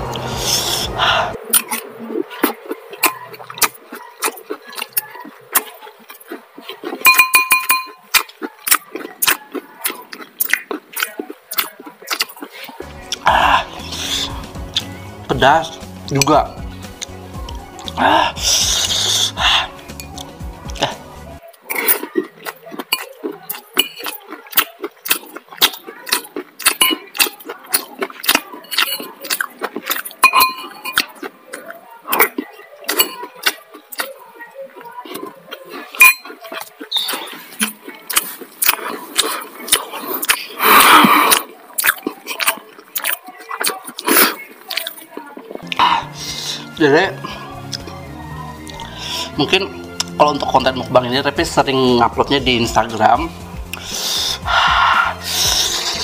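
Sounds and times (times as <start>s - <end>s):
close chewing and mouth clicks: 0.0s - 15.0s, 16.0s - 50.2s, 53.5s - 56.0s
spoon scraping ceramic bowl: 7.0s - 8.0s, 30.2s - 31.0s, 35.9s - 37.1s
metal spoon scraping ceramic bowl: 36.0s - 36.4s.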